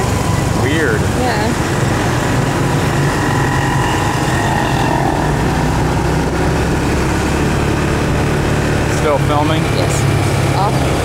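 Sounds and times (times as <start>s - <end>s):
motorcycle engine running: 0.0s - 11.0s
wind and road noise: 0.0s - 11.0s.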